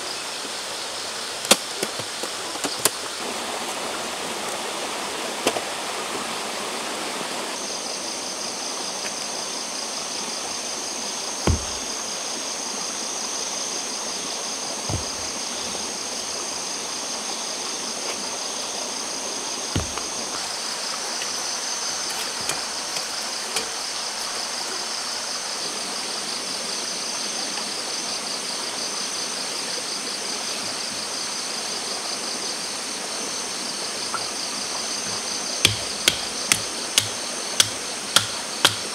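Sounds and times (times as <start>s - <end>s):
stream rushing: 0.0s - 29.7s, 30.4s - 38.9s
insects trilling: 0.0s - 38.9s
stones thumping on ground: 11.4s - 12.0s, 14.9s - 16.4s, 19.8s - 20.5s, 35.7s - 38.9s.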